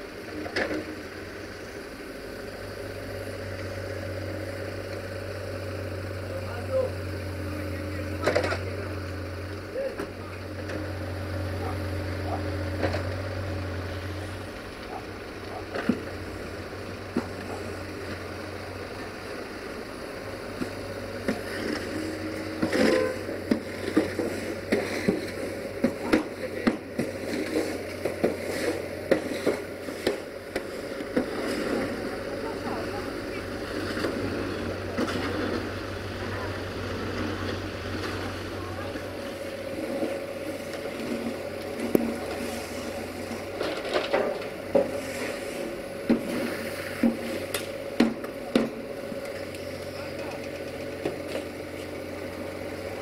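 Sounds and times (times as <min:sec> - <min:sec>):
diesel engine running: 0:00.0 - 0:53.0
digging knocks and scrapes: 0:20.6 - 0:31.9.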